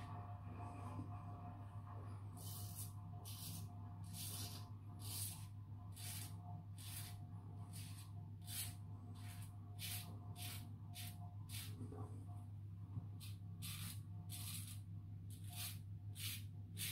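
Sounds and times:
steady low hum: 0.0 - 16.9
razor scraping stubble: 6.0 - 11.8, 13.2 - 16.9.

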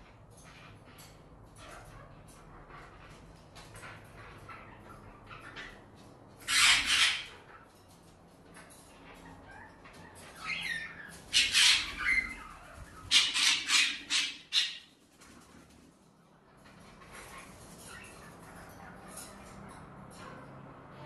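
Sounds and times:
cockatiels screeching: 0.4 - 7.8, 8.4 - 15.5, 16.6 - 20.6.

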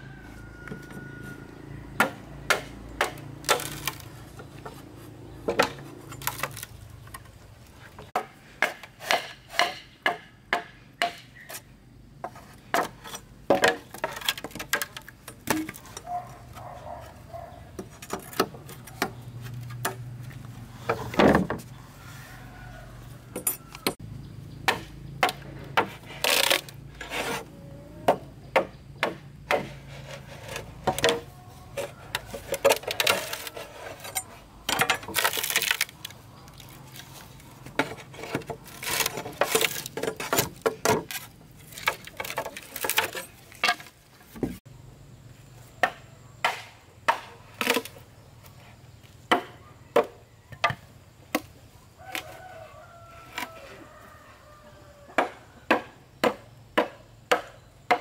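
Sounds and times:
machete chopping bamboo: 2.0 - 4.2, 8.1 - 11.5, 24.6 - 27.4, 28.1 - 36.7, 45.8 - 48.0, 49.3 - 52.4, 55.2 - 58.0
blade scraping inside bamboo: 2.6 - 7.1, 25.8 - 27.6, 29.5 - 44.6.

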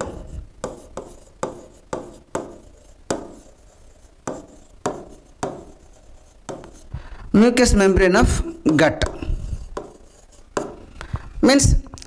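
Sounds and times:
pen tapping on glass screen: 0.0 - 3.5, 4.3 - 5.9, 6.5 - 6.8, 8.6 - 10.8.

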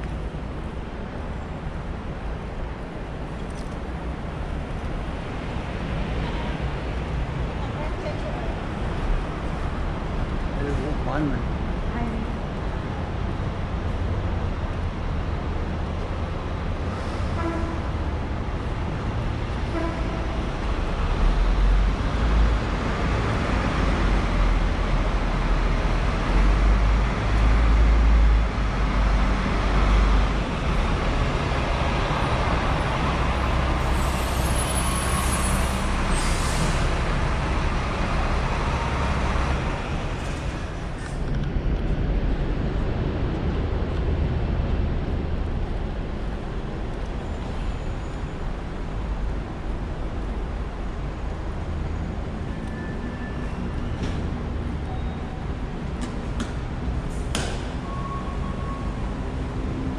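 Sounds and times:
heavy road traffic rumbling: 0.0 - 59.9.

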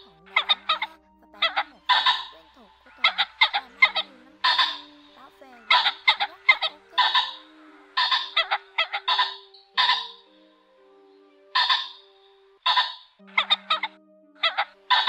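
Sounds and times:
pheasant calls: 0.0 - 10.3, 11.5 - 15.0.

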